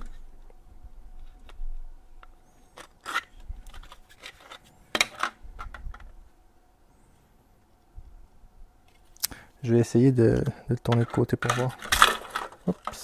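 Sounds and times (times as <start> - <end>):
plastic parts clicking together: 10.8 - 13.0.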